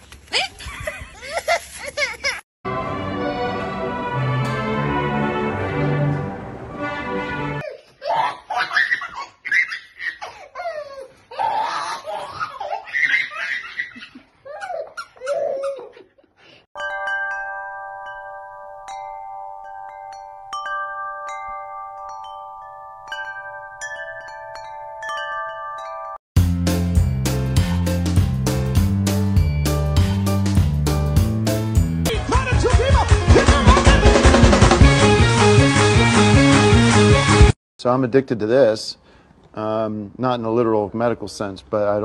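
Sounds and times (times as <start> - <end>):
chimes ringing: 16.8 - 26.2.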